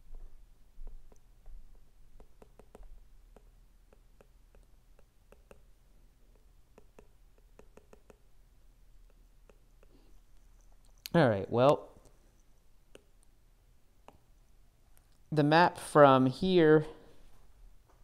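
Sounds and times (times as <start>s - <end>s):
stylus tapping on glass screen: 2.2s - 5.7s, 6.3s - 8.3s.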